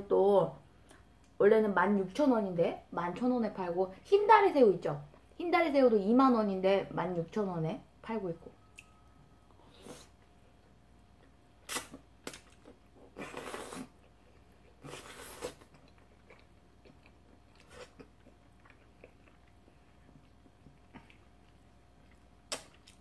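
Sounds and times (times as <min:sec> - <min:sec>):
wet chewing: 0:10.0 - 0:23.0
faint mouth smacks: 0:11.7 - 0:12.7, 0:22.5 - 0:23.0.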